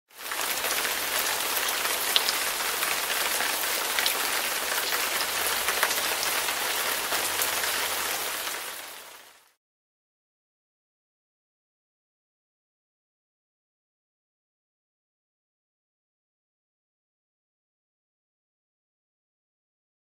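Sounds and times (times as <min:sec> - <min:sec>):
rain falling: 0:00.1 - 0:09.6.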